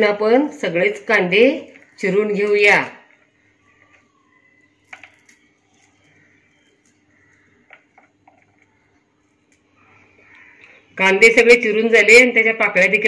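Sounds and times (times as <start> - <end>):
fingers pulling apart onion: 3.2 - 10.5.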